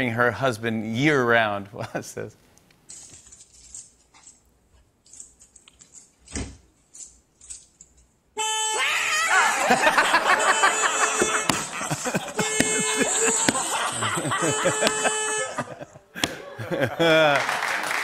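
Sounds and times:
car horn blaring: 8.4s - 8.9s, 9.8s - 15.8s.

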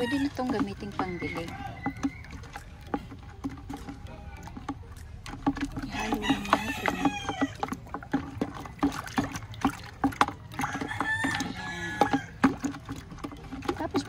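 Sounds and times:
rooster crowing: 0.0s - 2.8s, 5.8s - 7.7s, 10.6s - 12.6s
liquid sloshing in a bucket: 0.0s - 14.0s
stick knocking on bucket: 0.0s - 14.0s.

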